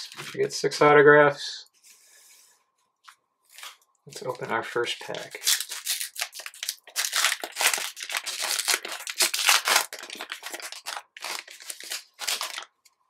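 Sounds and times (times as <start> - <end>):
foil wrapper tearing and crinkling: 3.5 - 4.3, 5.0 - 12.8.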